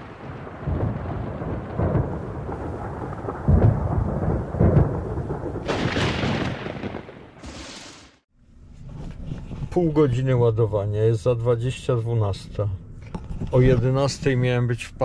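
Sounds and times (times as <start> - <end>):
thunder rumbling: 0.0 - 8.0.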